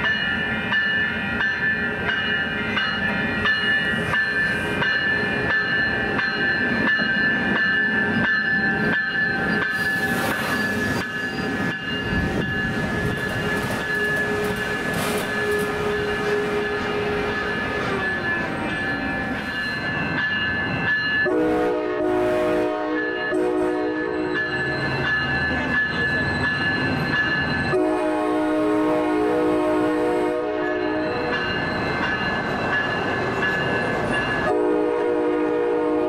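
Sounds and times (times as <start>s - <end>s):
steady high tones: 0.0s - 21.3s
train wheels clicking over rail joints: 0.8s - 21.2s.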